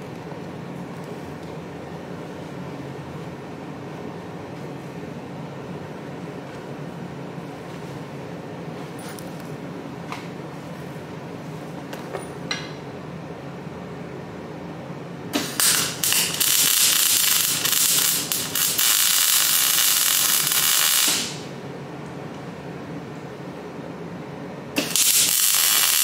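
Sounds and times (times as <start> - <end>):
welding arc crackling and hissing: 15.3 - 21.6, 24.8 - 26.0.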